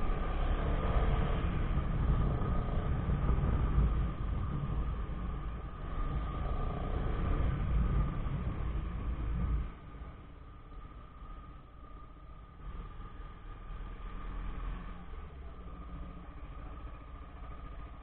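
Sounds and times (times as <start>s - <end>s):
motorcycle engine running: 0.0s - 12.6s
steady whine: 0.0s - 18.0s
wind rumble on microphone: 0.0s - 18.0s.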